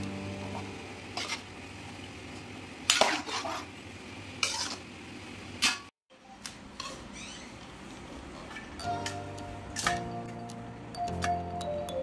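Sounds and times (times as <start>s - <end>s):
metal ladle scraping metal pot: 4.4s - 4.8s.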